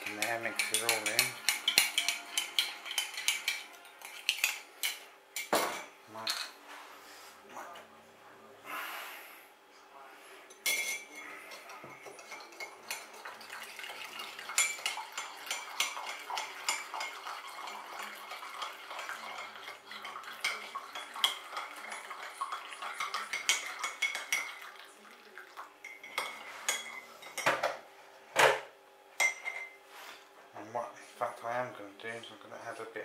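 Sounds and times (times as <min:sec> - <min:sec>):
teaspoon clinking in mug: 0:00.0 - 0:04.6.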